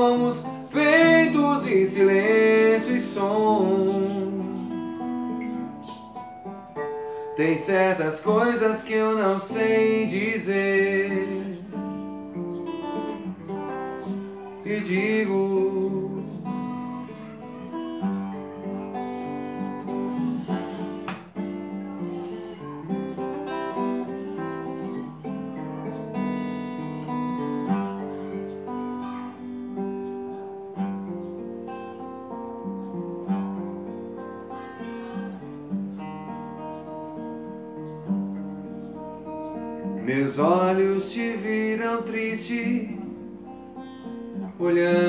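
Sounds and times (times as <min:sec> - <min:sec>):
acoustic guitar playing chords: 0:00.0 - 0:45.0.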